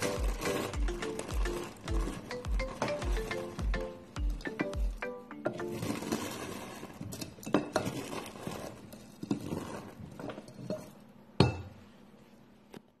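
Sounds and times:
soap shavings rustling and crunching: 0.0 - 3.0, 5.6 - 10.7.

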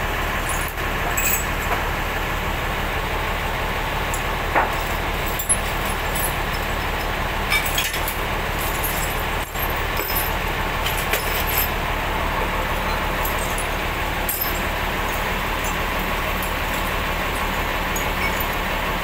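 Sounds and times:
engine humming: 0.0 - 19.0
bolts clinking into metal bucket: 12.8 - 18.7.

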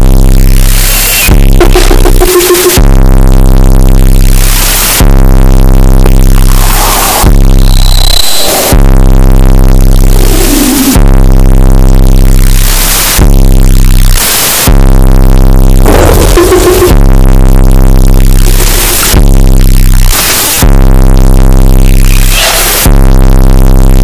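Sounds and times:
distorted synthesizer drone: 0.0 - 24.0
blasts of hissing noise: 6.4 - 8.9, 22.1 - 22.8
falling synth sweeps: 15.9 - 17.0.

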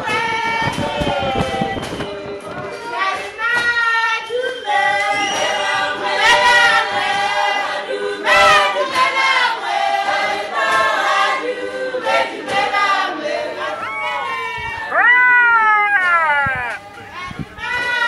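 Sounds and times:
choir singing in harmony: 4.1 - 14.6.

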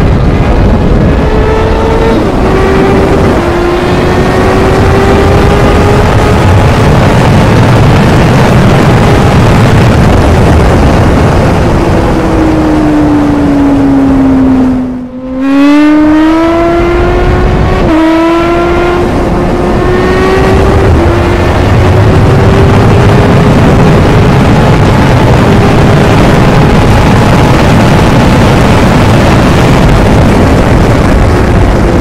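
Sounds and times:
motorcycle engine at speed: 0.0 - 32.0
wind rush: 0.0 - 32.0.

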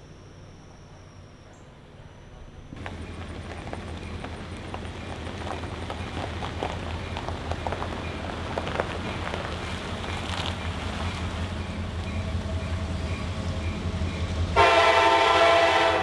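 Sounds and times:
low engine hum: 0.0 - 14.6
tyres crunching on gravel: 2.8 - 13.5.

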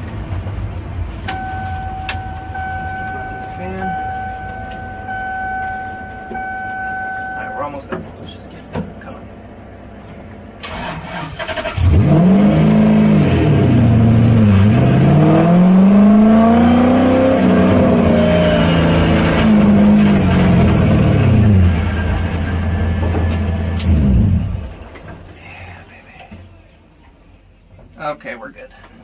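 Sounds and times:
car engine revving: 1.2 - 9.3, 10.4 - 24.7.

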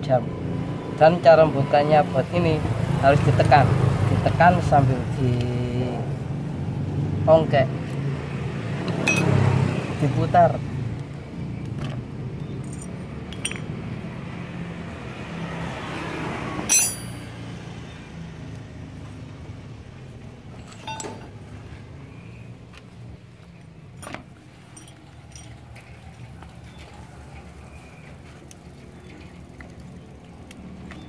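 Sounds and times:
small metal parts clinking: 9.0 - 9.4, 12.6 - 13.7, 16.7 - 17.3, 20.6 - 21.4, 24.0 - 25.6.

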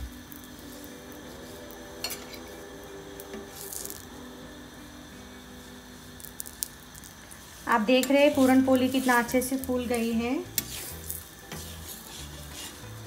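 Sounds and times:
soft background music: 0.0 - 13.0
metal spoon clinking on iron pan: 2.0 - 2.4.

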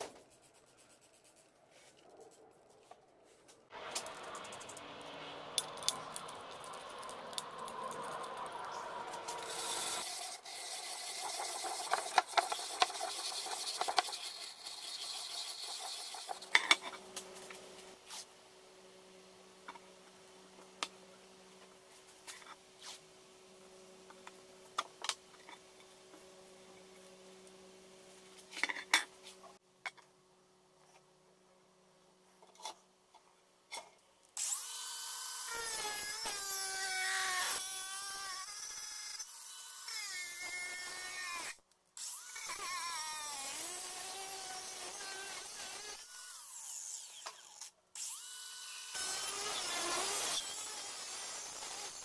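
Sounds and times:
angle grinder wire brush rasping: 3.9 - 17.0.

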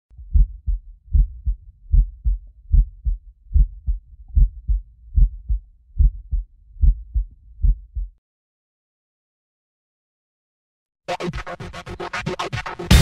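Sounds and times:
heartbeat thumps: 0.1 - 8.2.

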